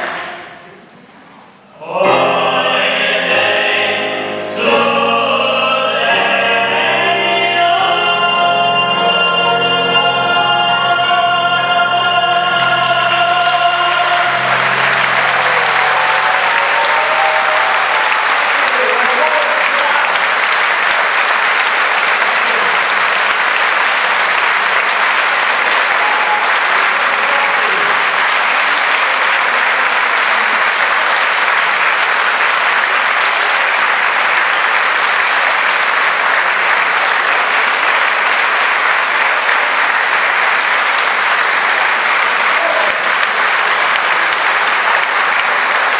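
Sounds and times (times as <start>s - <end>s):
audience applause: 11.9s - 45.9s.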